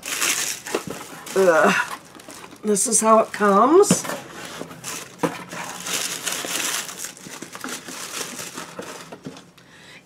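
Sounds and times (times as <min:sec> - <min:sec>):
tissue paper crinkling: 0:00.0 - 0:03.1, 0:04.4 - 0:09.1.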